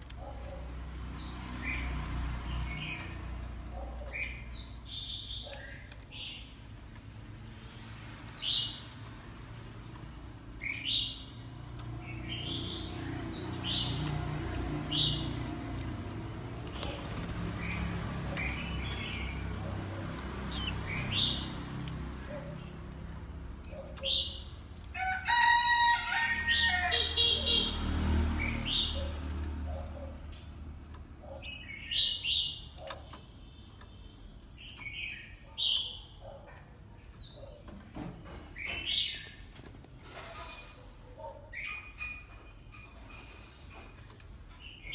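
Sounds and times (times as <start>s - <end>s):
bird chirping calls: 0.0s - 9.3s, 9.9s - 24.7s, 26.5s - 39.6s, 41.2s - 43.3s.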